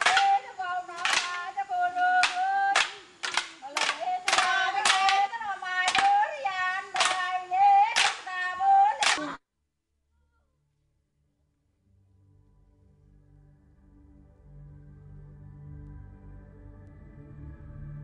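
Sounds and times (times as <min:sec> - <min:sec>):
group chanting: 0:00.0 - 0:09.4.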